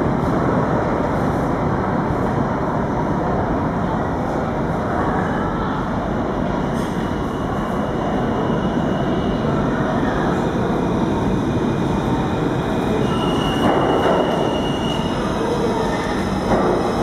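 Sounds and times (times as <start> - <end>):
subway train wheels rumbling on rail: 0.0 - 17.0
train wheel squeal: 6.8 - 9.5, 12.9 - 16.4.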